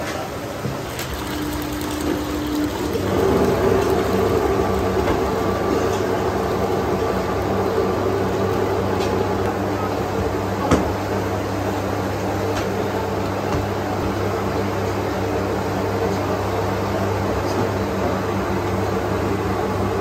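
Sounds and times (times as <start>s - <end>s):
machine humming: 0.6s - 12.4s.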